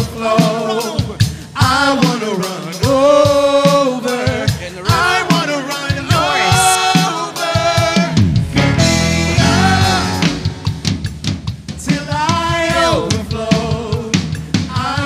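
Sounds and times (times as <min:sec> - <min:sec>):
person singing: 0:00.0 - 0:10.9, 0:11.8 - 0:15.0
drum kit: 0:00.0 - 0:15.0
electric bass low notes: 0:08.2 - 0:11.4.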